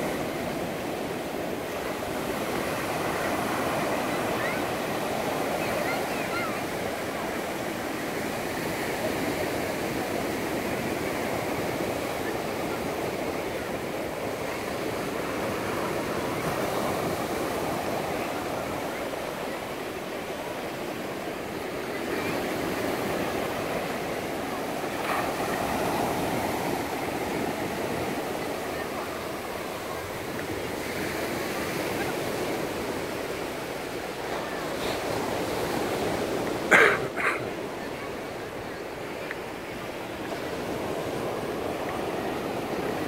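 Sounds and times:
waves breaking on sandy beach: 0.0 - 43.0.

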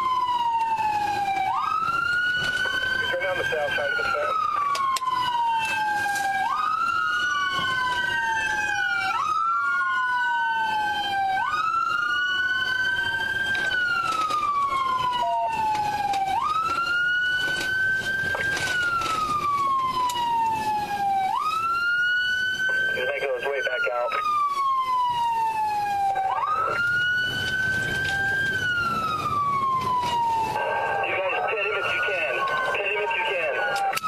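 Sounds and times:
police siren rising and falling slowly: 0.0 - 34.0
police siren wailing fast: 0.0 - 34.0.

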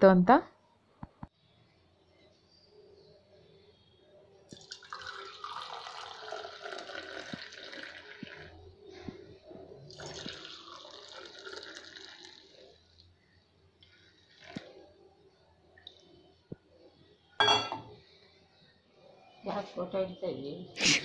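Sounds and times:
tea pouring into metal mugs: 4.5 - 15.1.

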